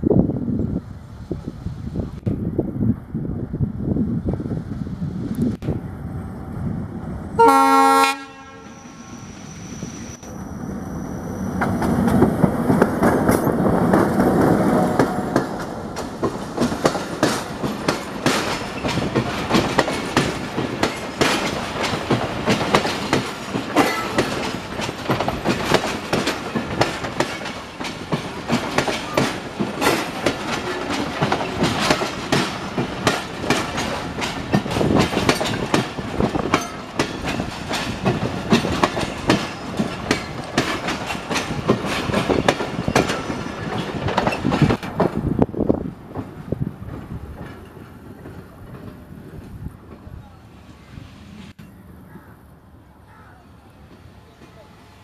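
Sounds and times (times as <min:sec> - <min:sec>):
diesel locomotive engine: 0:00.0 - 0:55.0
train wheels clickety-clack: 0:11.6 - 0:50.2.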